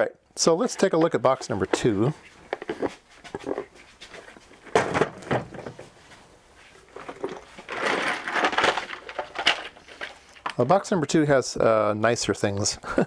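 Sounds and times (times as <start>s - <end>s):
metal connectors clattering: 6.8s - 10.8s.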